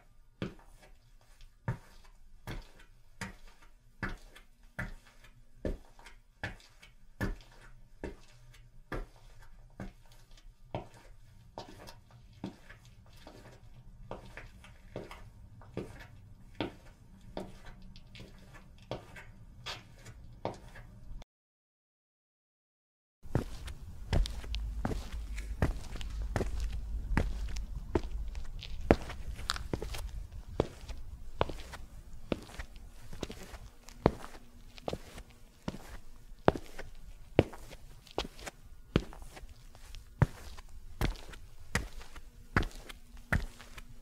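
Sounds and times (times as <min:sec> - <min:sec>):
footsteps walking: 0:09.0 - 0:20.9, 0:23.3 - 0:44.0
low background rumble: 0:23.3 - 0:34.3.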